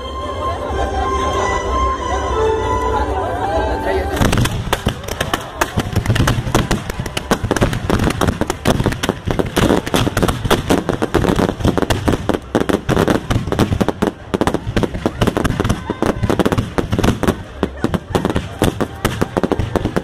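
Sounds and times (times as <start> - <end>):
firecrackers crackling: 4.1 - 20.0.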